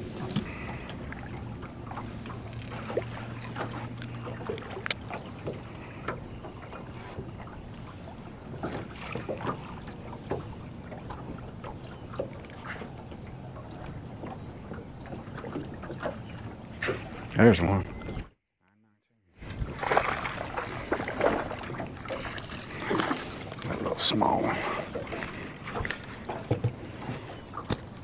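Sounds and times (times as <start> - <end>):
waves lapping against boat hull: 0.0 - 18.3, 19.4 - 28.0
trolling motor humming: 0.0 - 18.4, 19.4 - 28.0.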